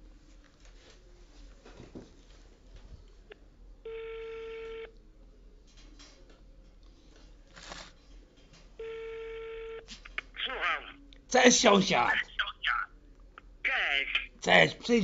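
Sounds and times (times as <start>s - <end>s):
telephone ringback tone: 3.9s - 4.9s, 8.8s - 9.9s.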